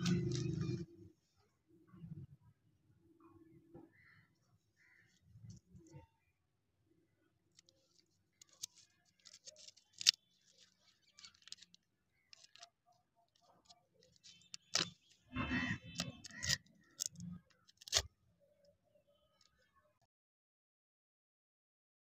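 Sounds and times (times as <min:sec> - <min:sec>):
wrapper crackling and rustling: 0:07.6 - 0:12.7, 0:13.4 - 0:15.2.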